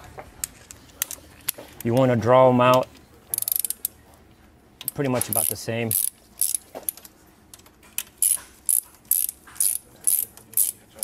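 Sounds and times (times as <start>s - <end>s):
hand ratchet clicking: 3.3s - 3.9s, 4.8s - 10.8s.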